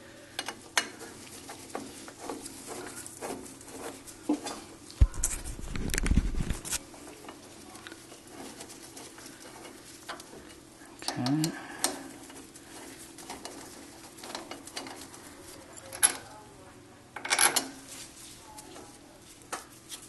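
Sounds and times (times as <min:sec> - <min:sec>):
metal parts clicking and tapping: 0:00.4 - 0:04.6, 0:07.2 - 0:16.4, 0:17.2 - 0:17.8.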